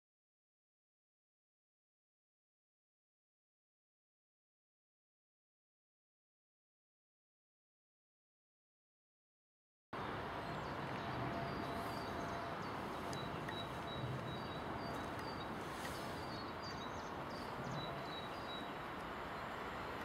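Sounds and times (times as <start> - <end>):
rushing outdoor background noise: 10.0 - 20.0
songbirds chirping: 10.0 - 20.0.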